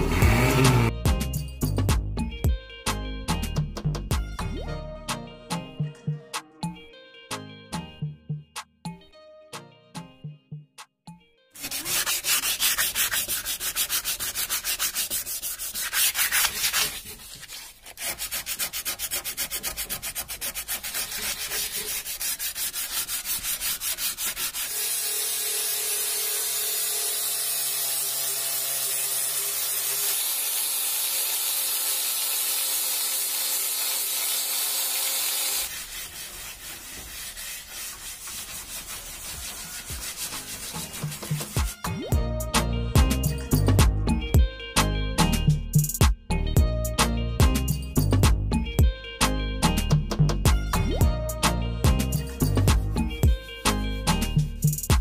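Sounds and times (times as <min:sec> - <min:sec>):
sandpaper rubbing on metal: 0:11.6 - 0:26.1, 0:33.4 - 0:41.9.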